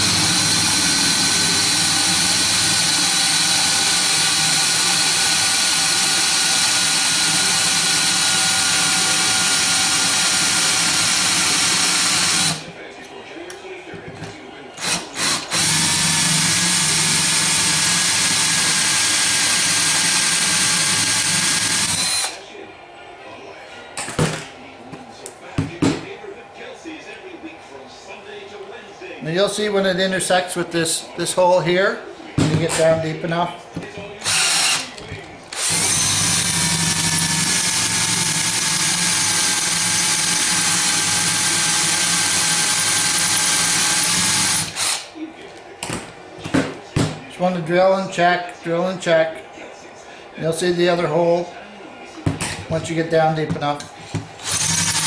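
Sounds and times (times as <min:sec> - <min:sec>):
electric drill whining: 0:00.0 - 0:12.6, 0:14.8 - 0:22.4, 0:34.2 - 0:45.1, 0:54.4 - 0:55.0.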